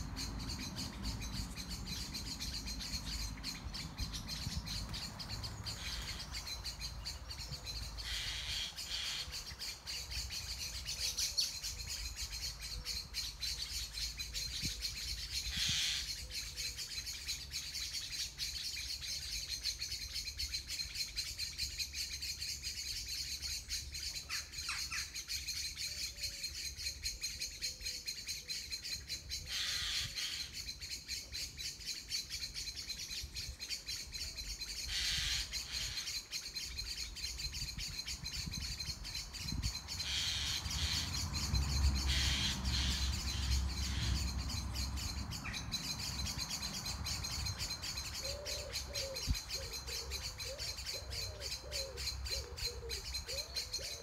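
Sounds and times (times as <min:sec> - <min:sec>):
birds singing and chirping: 0:00.0 - 0:54.0
low cooing call: 0:48.2 - 0:54.0.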